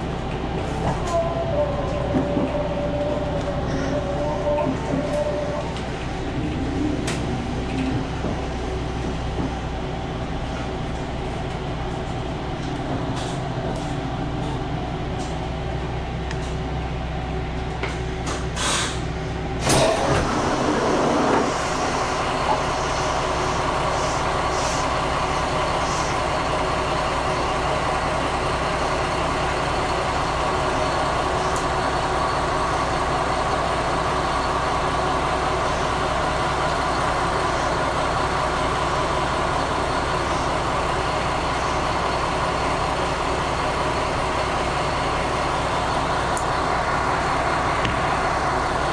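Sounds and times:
diesel railcar engine drone: 0:00.0 - 0:48.9.

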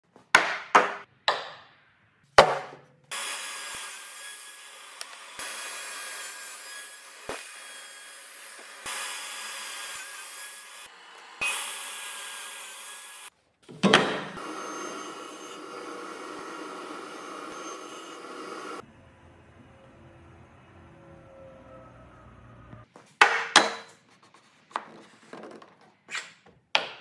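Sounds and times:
wooden blocks knocking on workbench: 0:00.3 - 0:01.6, 0:02.4 - 0:02.8, 0:23.2 - 0:23.9, 0:24.7 - 0:25.9, 0:26.8 - 0:27.0
power saw cutting wood: 0:03.1 - 0:13.3, 0:14.3 - 0:18.8.

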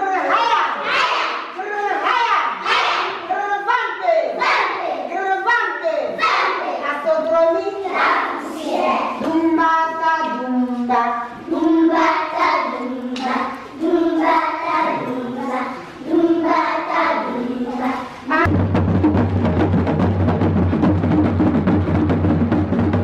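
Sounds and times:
children singing: 0:00.0 - 0:03.8, 0:04.4 - 0:05.2, 0:06.2 - 0:06.8, 0:07.7 - 0:09.6, 0:11.3 - 0:18.4
hand drums playing: 0:18.5 - 0:23.0.

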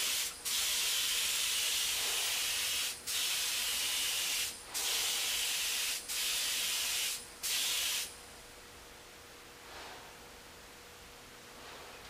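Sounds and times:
paint spray gun hissing: 0:00.0 - 0:08.1.

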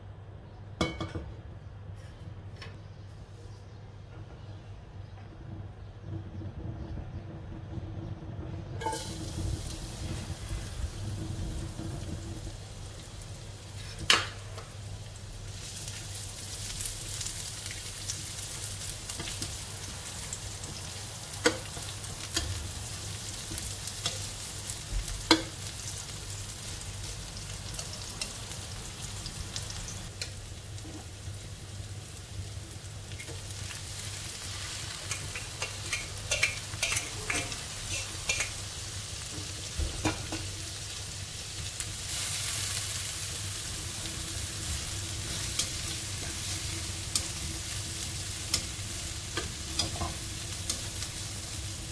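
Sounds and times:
shallots sizzling in hot oil: 0:08.8 - 0:51.9
spatula tapping and scraping pan: 0:25.2 - 0:25.6, 0:35.0 - 0:38.6, 0:48.5 - 0:51.0.

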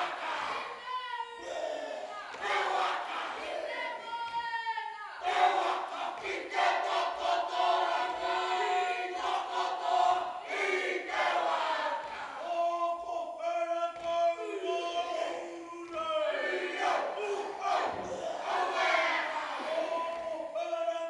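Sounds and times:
group chanting and singing: 0:00.0 - 0:21.0.

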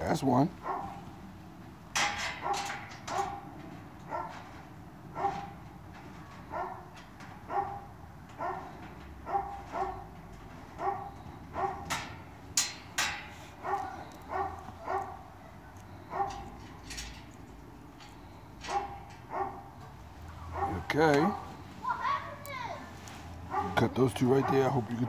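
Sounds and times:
dog yapping: 0:00.6 - 0:01.0, 0:02.4 - 0:03.5, 0:04.1 - 0:04.4, 0:05.1 - 0:05.6, 0:06.4 - 0:06.9, 0:07.5 - 0:10.1, 0:10.8 - 0:11.9, 0:13.6 - 0:16.6, 0:18.7 - 0:19.8, 0:20.4 - 0:22.8, 0:23.5 - 0:23.8.

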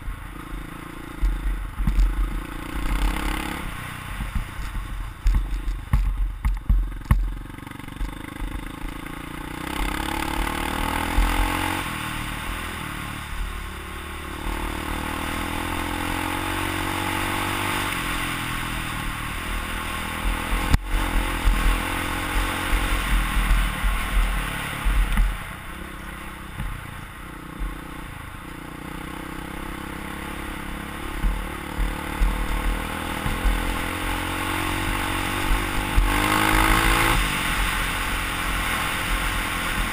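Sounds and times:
dirt bike engine revving: 0:00.0 - 0:39.9
wind buffeting microphone: 0:18.2 - 0:26.9.

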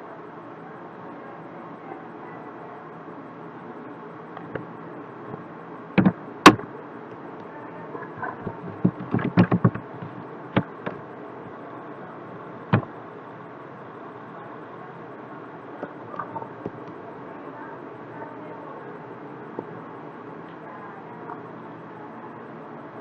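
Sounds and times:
keyboard keystrokes: 0:06.0 - 0:06.6, 0:08.8 - 0:09.8.

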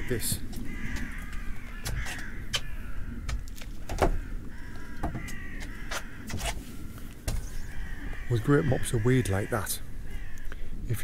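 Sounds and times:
harsh cawing bird calls: 0:00.0 - 0:11.0
sharp knocks and clicks: 0:00.4 - 0:04.2, 0:05.0 - 0:06.6.

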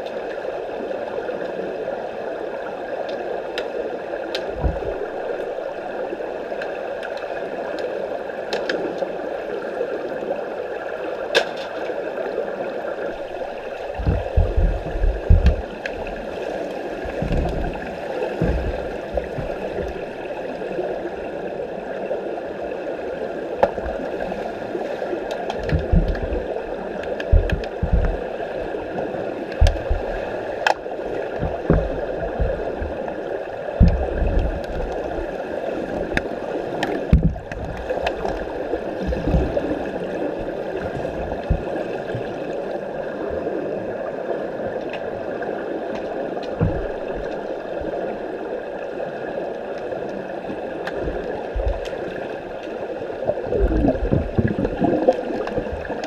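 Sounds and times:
low underwater thumps: 0:04.6 - 0:05.6, 0:13.1 - 0:16.3, 0:17.0 - 0:20.2, 0:25.6 - 0:28.4, 0:29.5 - 0:30.3, 0:31.3 - 0:35.3, 0:37.1 - 0:42.4, 0:46.6 - 0:47.9, 0:50.9 - 0:52.0, 0:53.4 - 0:56.0
underwater rushing hiss of water: 0:12.6 - 0:44.0, 0:50.1 - 0:56.0.

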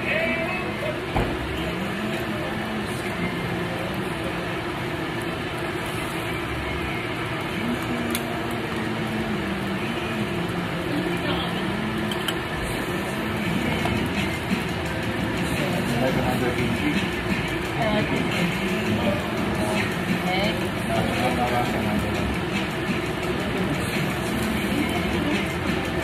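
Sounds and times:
ventilation hum: 0:00.0 - 0:26.0
background music: 0:07.4 - 0:26.0.

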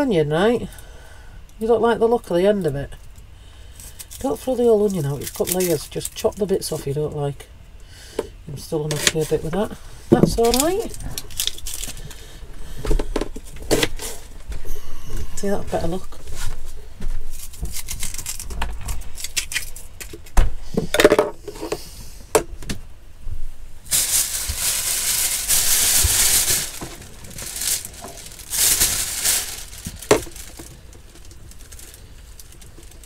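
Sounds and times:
plastic bag rustling: 0:08.9 - 0:20.0, 0:23.8 - 0:33.0.

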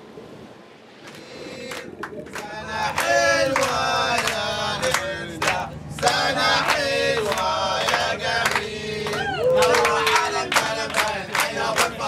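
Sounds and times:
group of people chanting: 0:02.5 - 0:12.0.

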